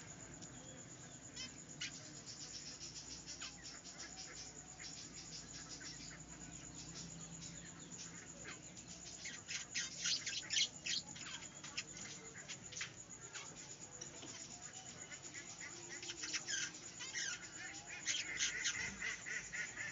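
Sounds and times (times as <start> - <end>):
budgerigars chirping: 15.6 - 19.9.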